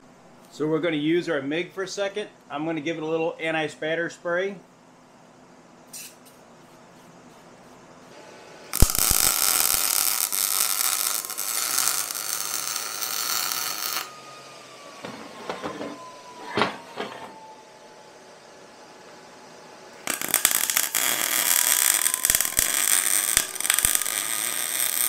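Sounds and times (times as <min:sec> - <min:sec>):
welder arc crackling: 0:08.7 - 0:14.2, 0:20.0 - 0:25.0.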